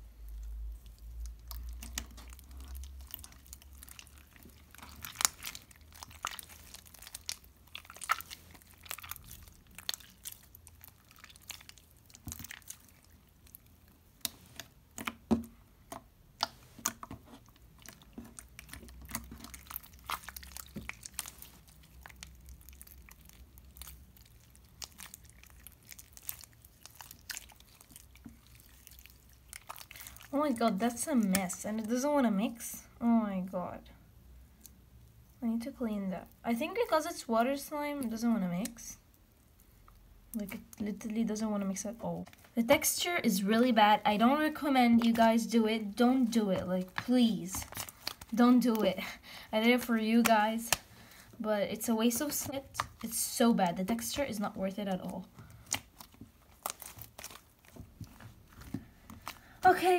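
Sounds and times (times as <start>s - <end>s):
slime and clay squelching: 0.0s - 59.9s.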